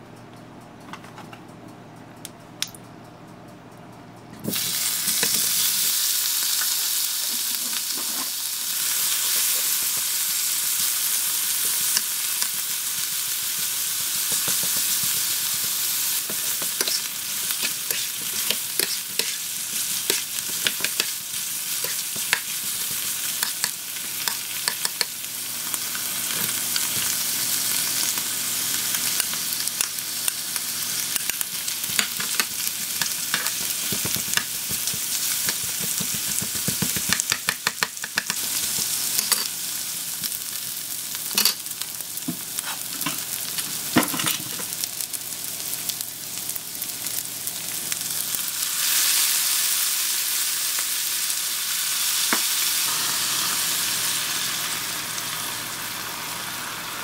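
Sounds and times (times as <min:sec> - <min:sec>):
meat sizzling in oil: 0:04.5 - 0:57.0
spatula scraping pan: 0:16.3 - 0:21.1.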